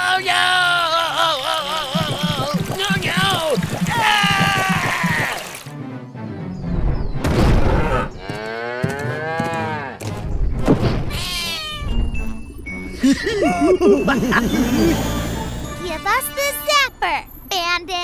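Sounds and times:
background music: 1.9s - 8.4s, 9.0s - 16.8s
lion cub high cry: 11.1s - 12.0s.

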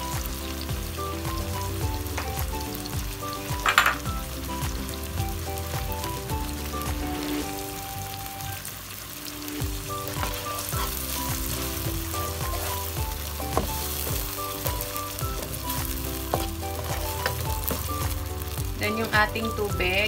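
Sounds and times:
food sizzling in oil: 0.0s - 20.0s
soft background music: 0.0s - 20.0s
spatula scraping wok: 9.9s - 18.0s.

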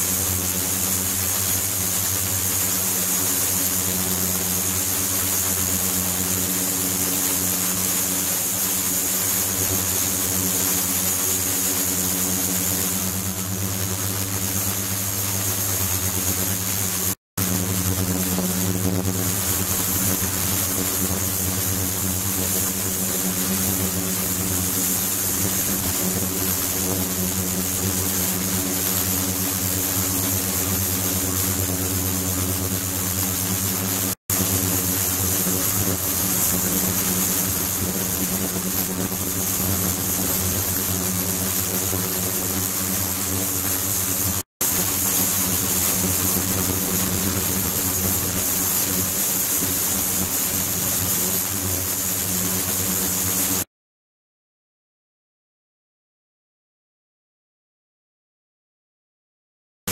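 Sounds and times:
circulation pump humming: 0.0s - 51.8s.

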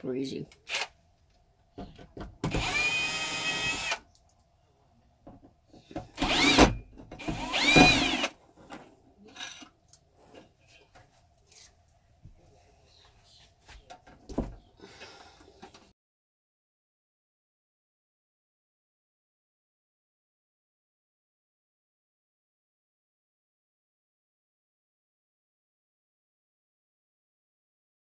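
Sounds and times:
cordless drill whining: 2.5s - 4.0s, 6.2s - 8.4s.

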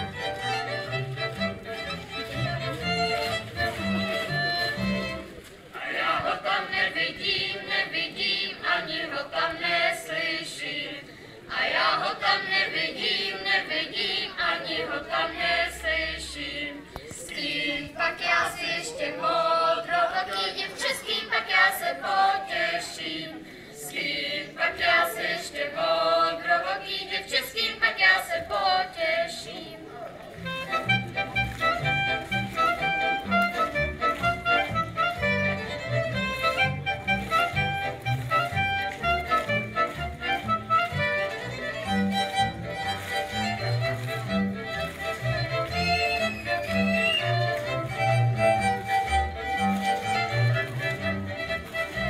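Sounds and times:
children singing unaccompanied: 5.8s - 23.3s.

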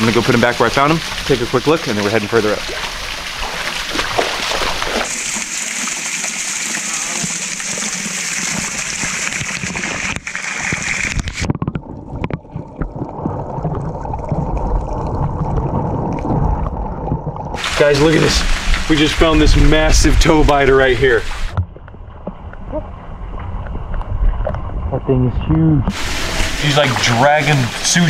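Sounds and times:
water rushing and splashing: 0.0s - 24.9s, 25.9s - 28.0s
underwater rumble of water: 6.7s - 28.0s.

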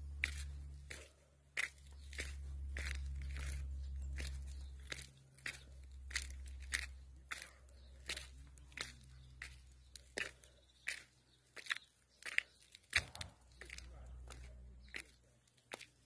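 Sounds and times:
low rumble: 0.0s - 9.3s
footsteps crunching over debris: 0.0s - 16.0s.

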